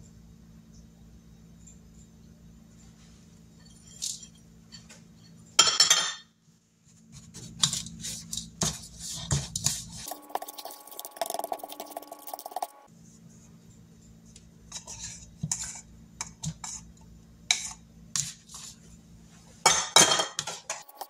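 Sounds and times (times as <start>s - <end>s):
steady hum: 6.4s - 21.0s
plastic spoon scraping bowl: 7.6s - 12.9s.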